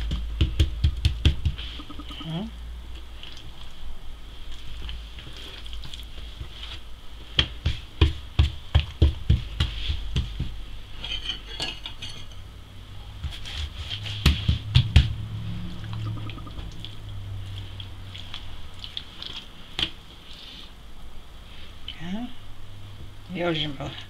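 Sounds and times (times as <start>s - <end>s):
soft thumps of dough on wood: 6.1s - 10.6s.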